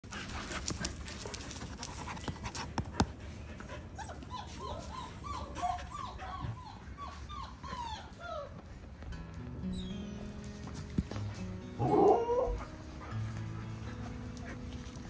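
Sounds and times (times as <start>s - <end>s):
puppy whining: 3.9s - 9.0s, 9.6s - 10.3s, 11.8s - 14.8s.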